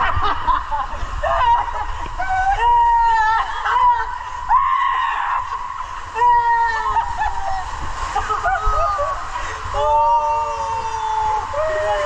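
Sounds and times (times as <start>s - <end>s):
men whooping and screaming: 0.0s - 12.0s
rushing water noise: 0.0s - 12.0s.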